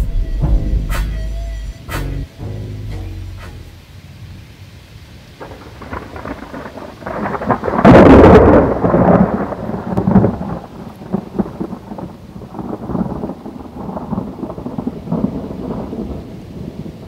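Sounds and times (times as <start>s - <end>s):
steady rain: 0.0s - 17.0s
thunder rolling: 5.4s - 17.0s.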